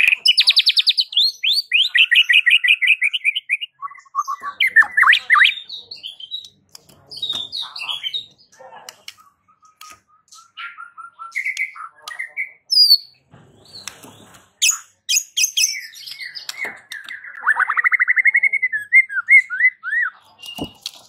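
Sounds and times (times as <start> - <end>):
bird singing varied whistles: 0.2 - 6.5, 14.6 - 20.8.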